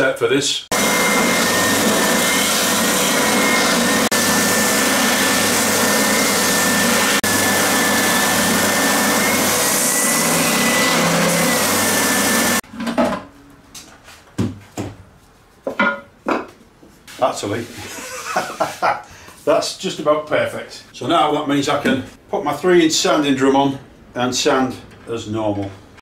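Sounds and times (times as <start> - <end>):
spindle sander running: 0.7 - 12.6.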